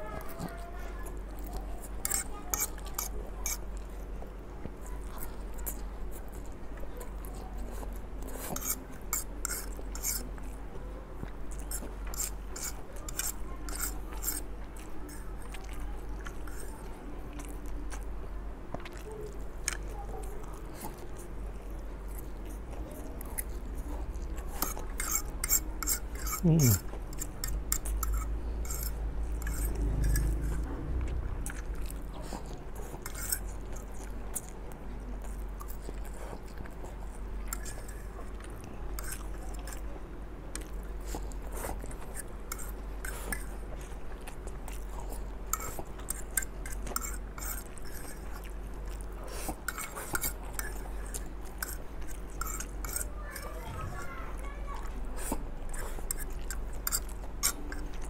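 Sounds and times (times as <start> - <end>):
person chewing: 0.0 - 54.1, 54.8 - 58.0
fork scraping ceramic plate: 2.0 - 3.6, 8.3 - 10.3, 11.5 - 14.5, 16.4 - 16.8, 24.5 - 30.7, 32.8 - 33.9, 37.5 - 38.1, 39.0 - 39.8, 41.6 - 43.5, 45.5 - 48.5, 49.3 - 54.1, 55.2 - 58.0.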